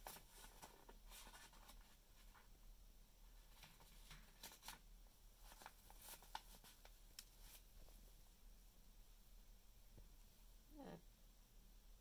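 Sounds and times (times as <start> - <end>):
newspaper crinkling and rustling: 0.0 - 2.5, 3.4 - 4.8, 5.4 - 7.7.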